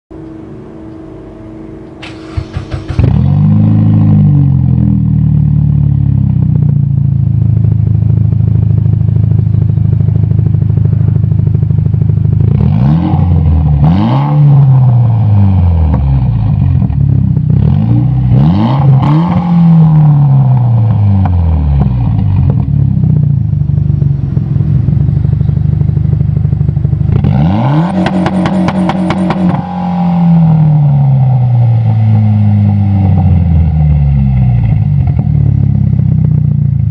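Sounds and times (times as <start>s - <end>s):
car engine idling: 0.1s - 36.9s
engine revving: 2.0s - 6.4s, 9.6s - 36.9s
engine on rev limiter stuttering: 17.8s - 31.6s.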